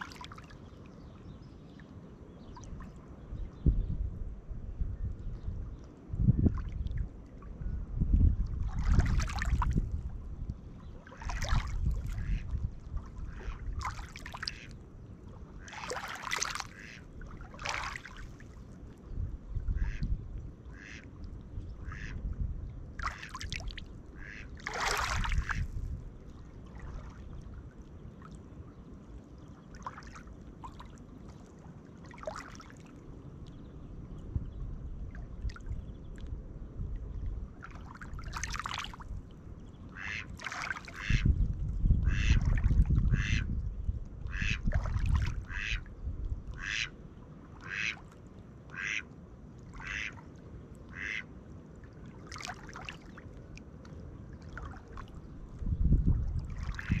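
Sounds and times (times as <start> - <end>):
waves lapping on pebbles: 15.7 - 18.5, 24.6 - 25.7, 37.6 - 39.0, 40.1 - 41.0, 52.2 - 53.2
duck quacking: 16.7 - 17.0, 20.7 - 21.0, 24.2 - 24.5, 40.0 - 40.3, 42.0 - 42.4, 43.1 - 43.5, 44.3 - 44.6, 45.5 - 45.8, 46.6 - 46.9, 47.6 - 48.0, 48.7 - 49.1, 49.8 - 50.2, 50.9 - 51.3.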